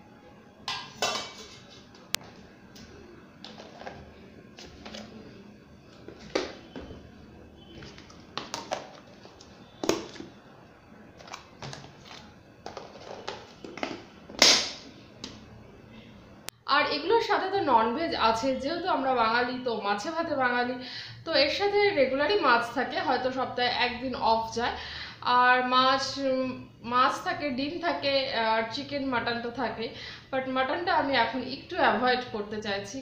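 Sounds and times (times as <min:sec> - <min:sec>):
containers knocking and clicking: 0:03.4 - 0:05.2, 0:05.9 - 0:07.0, 0:07.7 - 0:10.4, 0:11.2 - 0:15.4.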